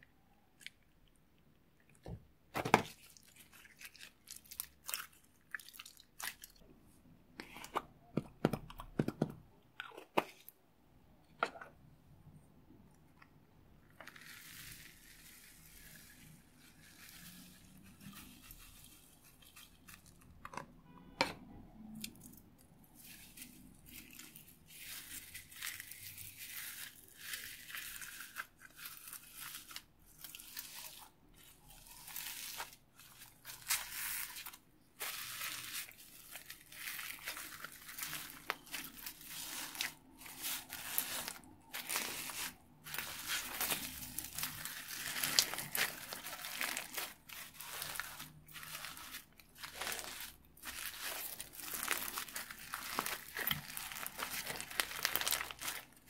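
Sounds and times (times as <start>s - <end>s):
foam beads crunching in slime: 14.0s - 20.2s, 21.9s - 56.0s.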